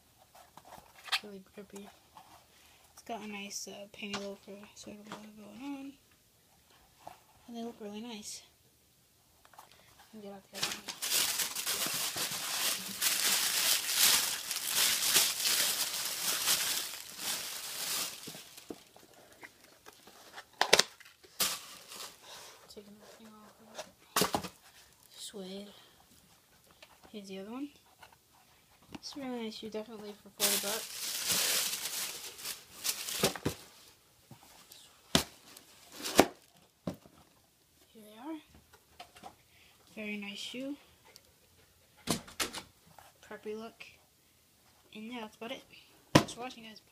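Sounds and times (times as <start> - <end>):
tissue paper rustling and crinkling: 10.5 - 22.4, 30.2 - 34.0, 35.3 - 36.6.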